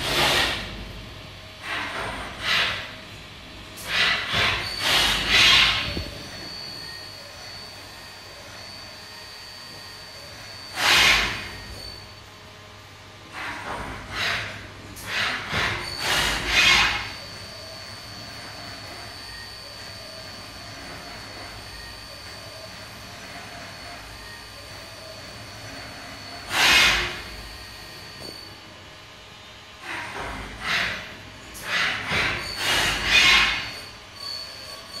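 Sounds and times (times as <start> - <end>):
machining centre humming: 0.0 - 35.0
faint high whine: 4.2 - 13.5, 15.6 - 29.6.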